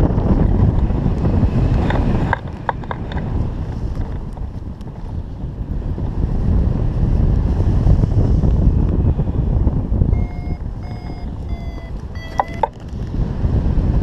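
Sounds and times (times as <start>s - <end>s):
wind buffeting microphone: 0.0s - 14.0s
short electronic beeps: 10.1s - 12.8s.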